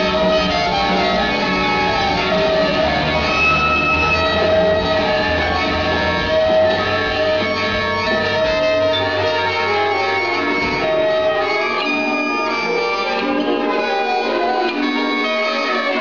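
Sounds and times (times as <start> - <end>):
low bass drone: 0.0 - 11.6
jazz ensemble playing: 0.0 - 16.0.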